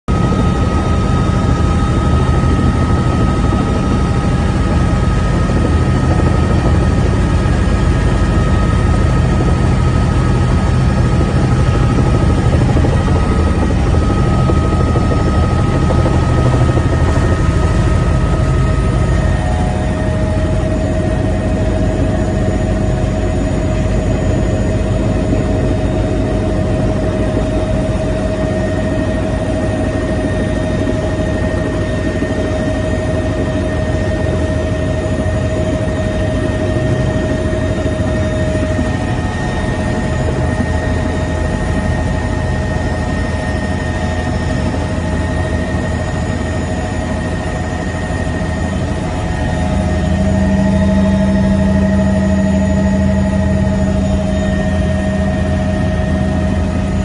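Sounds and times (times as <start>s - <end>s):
helicopter rotor drone: 0.1s - 57.0s
high turbine whine: 0.1s - 57.0s.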